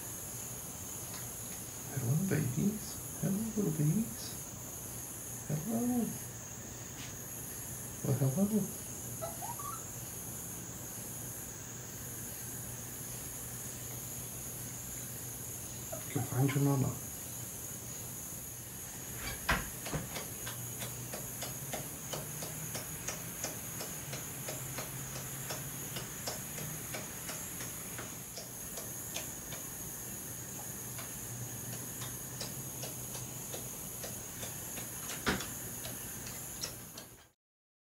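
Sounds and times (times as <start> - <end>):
crickets chirping: 0.0 - 37.4
clicks and ticks: 19.8 - 29.7, 30.9 - 37.3.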